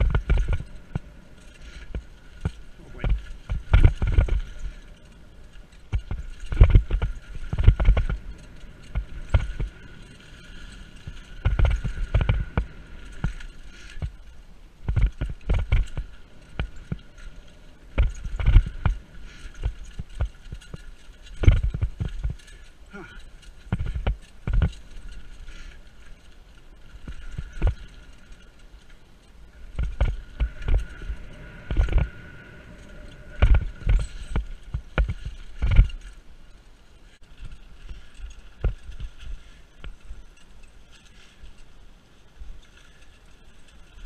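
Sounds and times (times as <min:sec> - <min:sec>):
bike thumping and rattling: 0:00.0 - 0:44.0.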